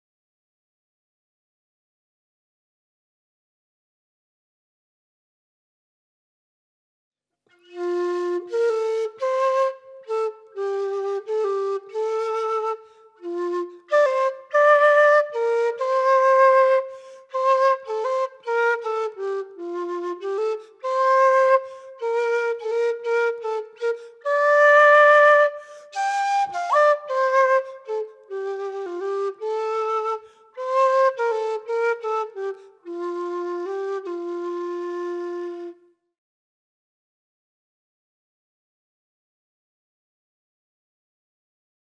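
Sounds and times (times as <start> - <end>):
wooden flute melody: 7.5 - 36.2.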